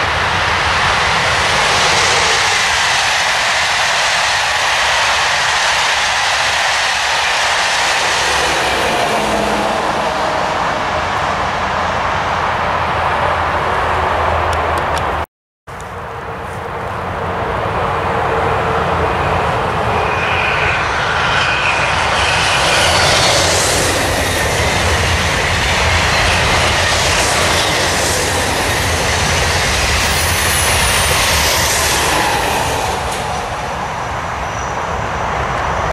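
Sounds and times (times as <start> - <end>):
high-speed train passing: 0.0 - 35.9
faint falling whines: 16.4 - 35.9.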